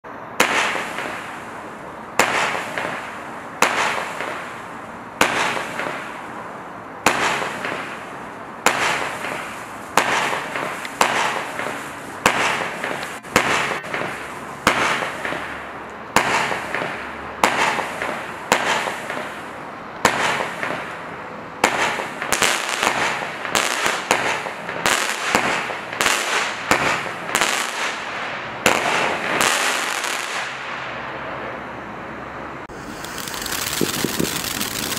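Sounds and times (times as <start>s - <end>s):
firework shots with crackle: 0.4s - 6.2s, 7.0s - 21.0s, 21.6s - 30.8s, 32.7s - 34.9s.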